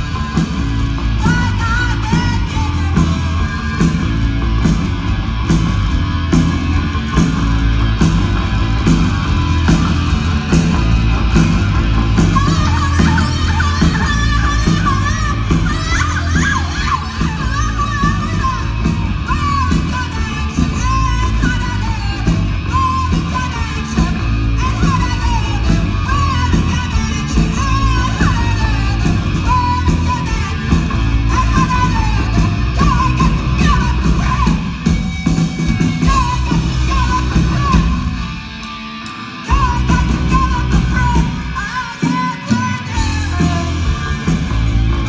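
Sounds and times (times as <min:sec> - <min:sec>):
woman singing and yelling: 0:00.0 - 0:04.2, 0:12.1 - 0:35.2, 0:35.9 - 0:38.3, 0:39.4 - 0:44.9
punk rock band playing live: 0:00.0 - 0:45.0.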